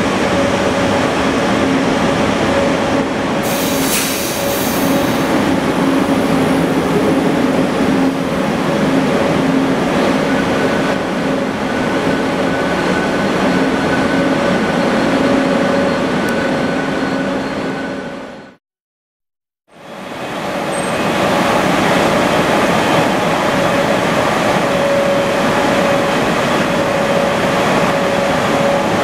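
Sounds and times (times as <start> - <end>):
train coaches rolling past: 0.0 - 18.6, 19.8 - 29.0.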